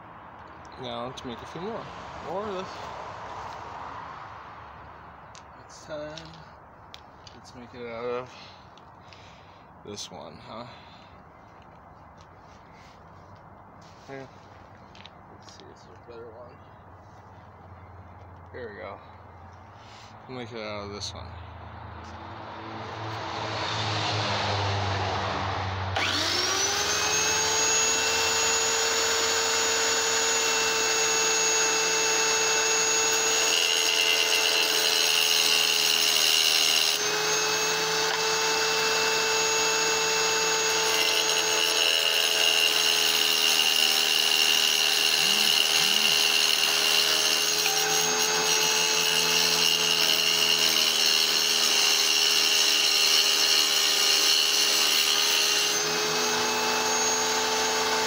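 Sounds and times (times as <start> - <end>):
tile saw motor whining: 26.0 - 58.0
gritty stone grinding: 32.7 - 38.0, 39.3 - 56.4.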